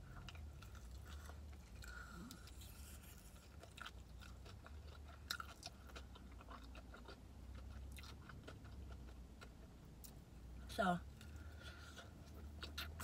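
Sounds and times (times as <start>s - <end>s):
chewing with wet mouth clicks: 0.0s - 10.2s, 11.2s - 13.0s
low steady rumble: 0.0s - 13.0s.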